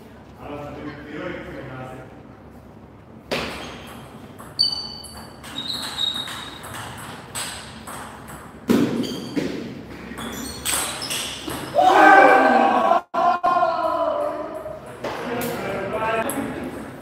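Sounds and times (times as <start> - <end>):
ping pong ball clicking: 3.9 - 8.6.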